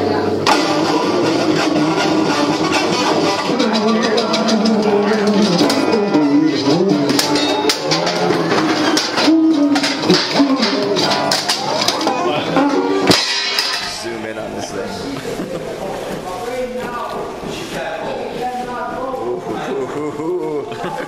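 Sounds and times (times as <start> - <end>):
electric guitar: 0.0 - 13.2
drums hitting steadily: 0.4 - 14.0.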